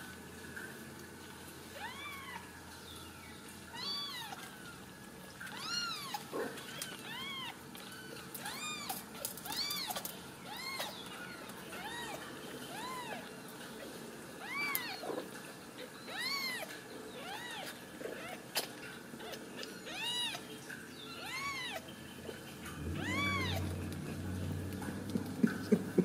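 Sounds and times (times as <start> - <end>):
kittens mewing: 5.5 - 20.5, 21.1 - 26.0.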